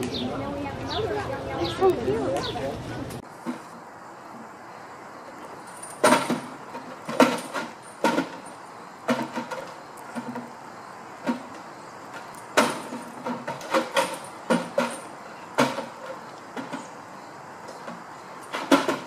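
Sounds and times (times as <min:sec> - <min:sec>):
feeder knocking and rattling: 0:06.0 - 0:08.5, 0:17.8 - 0:19.0.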